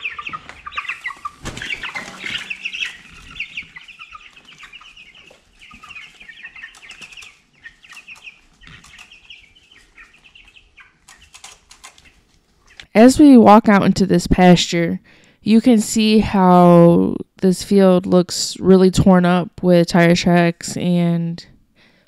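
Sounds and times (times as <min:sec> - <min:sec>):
chicks chirping and peeping: 0:00.0 - 0:12.9.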